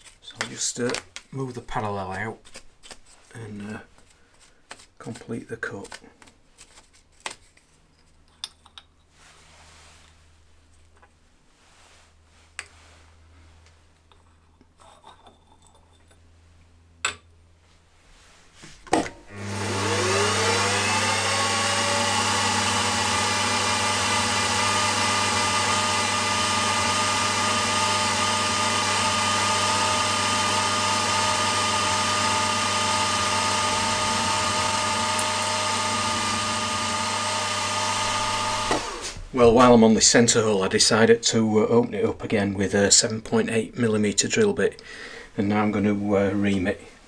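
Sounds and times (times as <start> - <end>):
drill boring through metal: 19.3 - 39.1
milling machine motor whining: 19.3 - 39.1.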